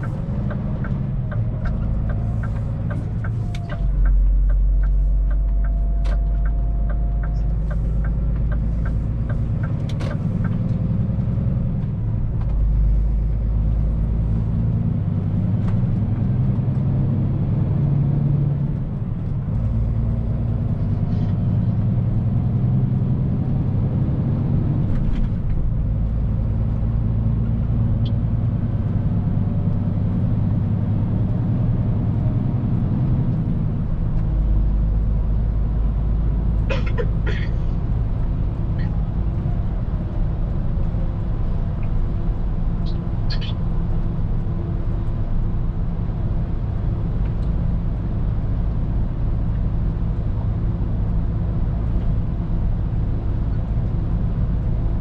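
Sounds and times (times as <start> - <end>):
truck engine and tyre drone: 0.0 - 55.0.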